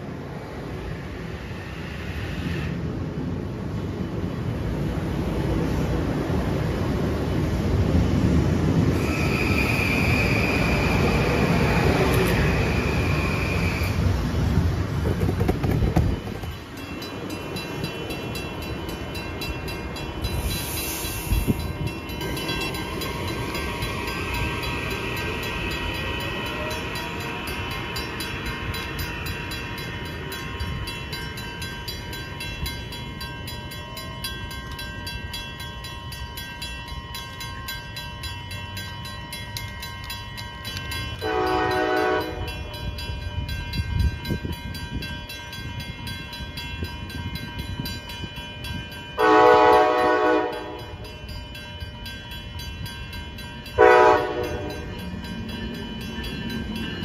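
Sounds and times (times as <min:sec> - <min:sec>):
electric train rumbling past: 0:00.0 - 0:57.0
crossing bell ringing: 0:02.8 - 0:14.9, 0:15.6 - 0:57.0
train horn blast: 0:41.2 - 0:42.5, 0:49.2 - 0:50.9, 0:53.8 - 0:54.8.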